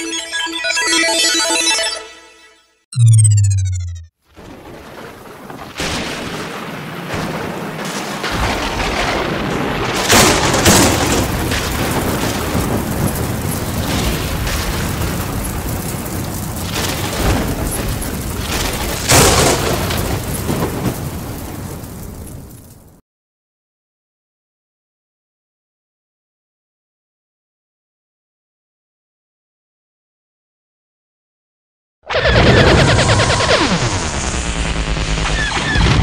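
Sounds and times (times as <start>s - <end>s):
heavy rain: 4.4s - 23.0s.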